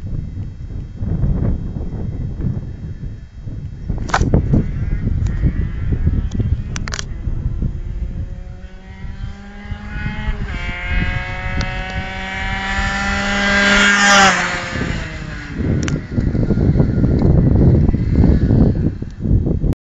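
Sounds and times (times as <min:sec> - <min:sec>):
two-stroke motorcycle passing by: 0:04.3 - 0:19.7.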